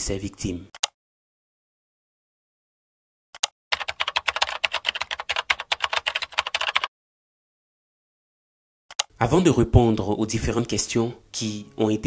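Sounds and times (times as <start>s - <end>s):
keyboard key clicks: 8.9s - 9.1s.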